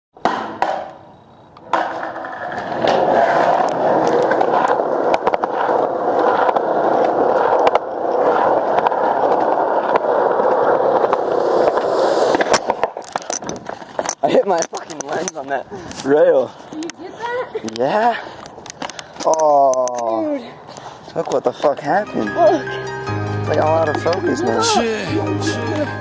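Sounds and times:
skateboard clacks: 0:00.2 - 0:01.0, 0:01.6 - 0:15.4
skateboard wheels rolling on concrete: 0:00.2 - 0:26.0.

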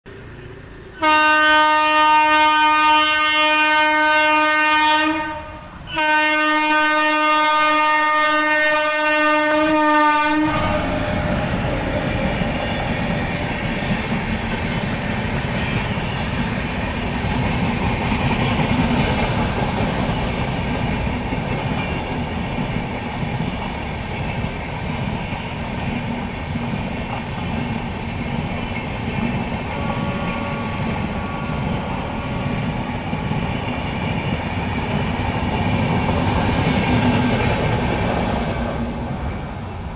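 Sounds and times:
train coaches rumbling past: 0:00.1 - 0:39.9
locomotive horn blast: 0:01.0 - 0:11.2, 0:29.6 - 0:32.5
train wheels clacking: 0:10.5 - 0:39.9.

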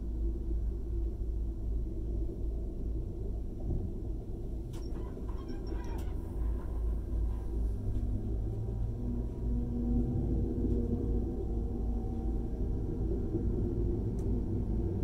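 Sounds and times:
train wheels rumbling: 0:03.6 - 0:15.0.

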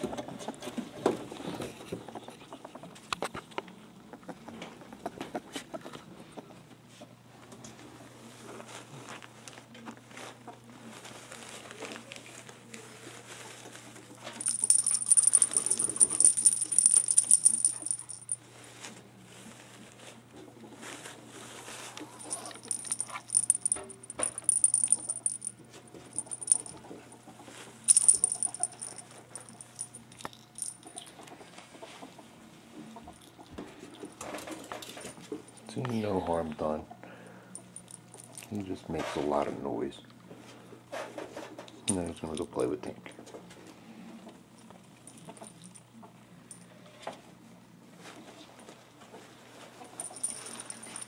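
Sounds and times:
small jingle bell jingling: 0:14.4 - 0:18.4, 0:22.2 - 0:26.8, 0:27.9 - 0:31.2, 0:37.6 - 0:38.6, 0:45.1 - 0:45.8, 0:49.9 - 0:51.0.

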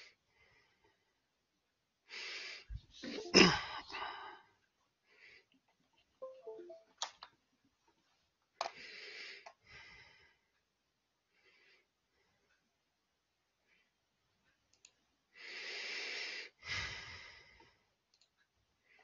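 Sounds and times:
man breathing through nose: 0:15.4 - 0:17.7.

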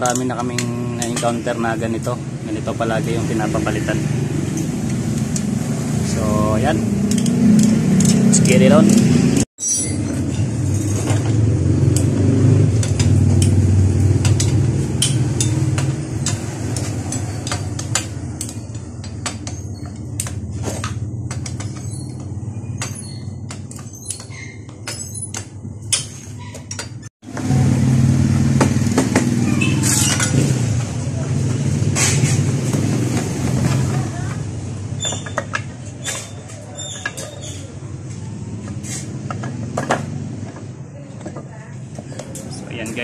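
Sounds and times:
wrench metal clicks and clinks: 0:07.0 - 0:09.0.

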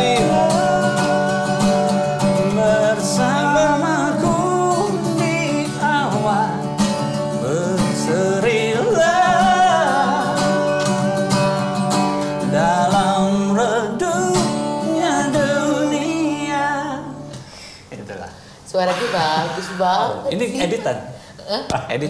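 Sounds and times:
man singing: 0:00.0 - 0:11.3, 0:12.4 - 0:17.3
acoustic guitar: 0:00.0 - 0:21.4.

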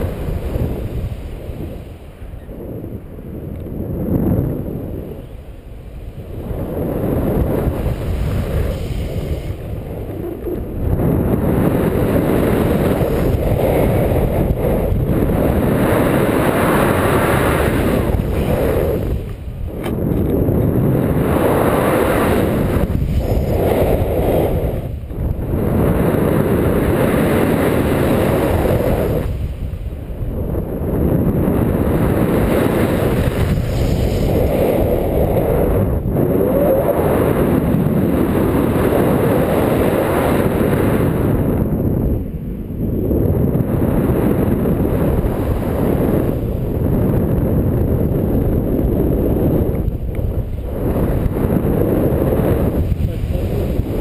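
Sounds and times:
wind roaring on microphone: 0:00.0 - 0:54.0.

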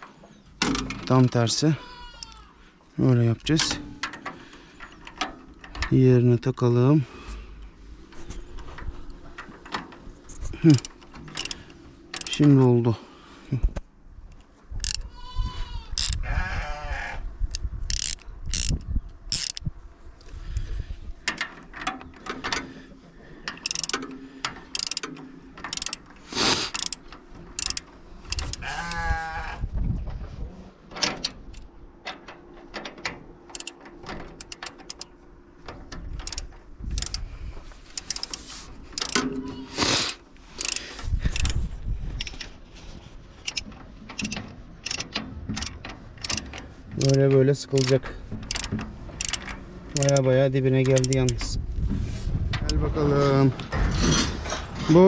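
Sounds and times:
wrench clicking on metal: 0:10.6 - 0:12.6, 0:14.3 - 0:15.1, 0:15.9 - 0:16.2, 0:17.5 - 0:19.7, 0:23.5 - 0:29.0, 0:33.5 - 0:35.1, 0:36.2 - 0:37.2, 0:37.9 - 0:39.3, 0:40.0 - 0:41.6, 0:42.2 - 0:42.5, 0:43.4 - 0:51.5
sheep bleating: 0:15.1 - 0:17.2, 0:28.6 - 0:29.6.

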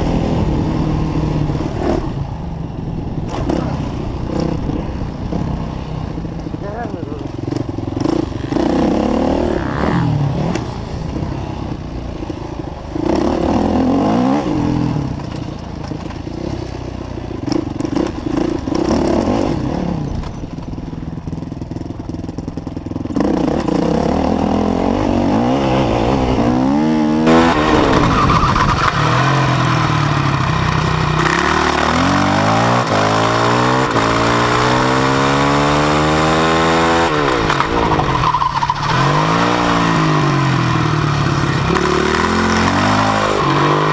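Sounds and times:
motocross engine revving: 0:06.6 - 0:10.8, 0:23.1 - 0:43.9.

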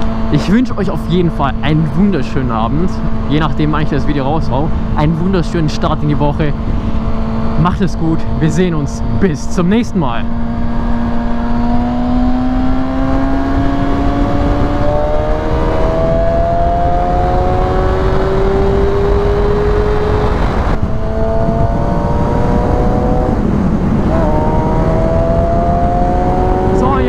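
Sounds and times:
motorcycle engine accelerating: 0:00.0 - 0:27.0
wind rush on microphone: 0:00.0 - 0:27.0.

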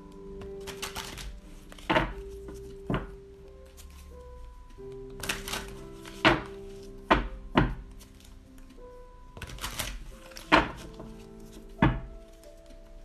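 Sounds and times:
soft background music: 0:00.0 - 0:13.0
cards riffle shuffling: 0:00.4 - 0:02.7, 0:05.0 - 0:06.8, 0:09.4 - 0:11.6.

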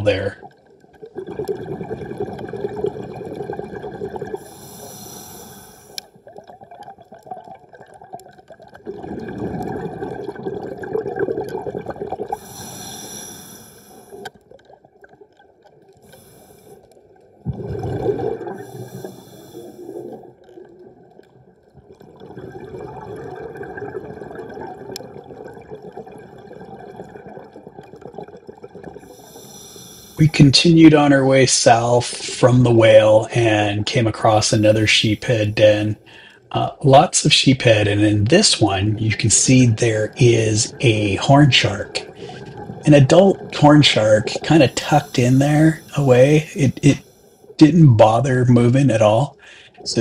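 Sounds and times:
diver breathing underwater: 0:04.2 - 0:06.2, 0:12.3 - 0:14.4, 0:16.0 - 0:17.0, 0:17.8 - 0:20.3, 0:29.0 - 0:30.2, 0:34.6 - 0:36.5, 0:42.1 - 0:42.8, 0:44.0 - 0:47.6, 0:49.4 - 0:49.8.

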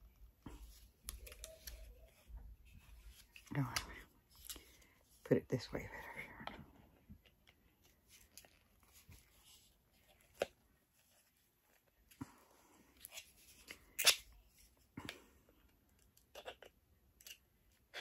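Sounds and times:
small plastic clicks and rustles: 0:00.6 - 0:04.7.

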